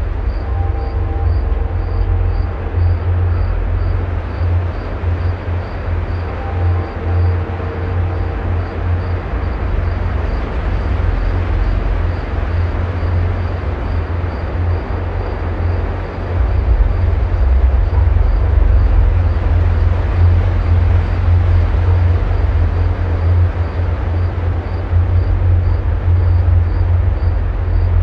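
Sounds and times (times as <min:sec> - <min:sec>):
faint high ticking pulse: 0:00.0 - 0:12.4
deep low rumble drone: 0:00.0 - 0:28.0.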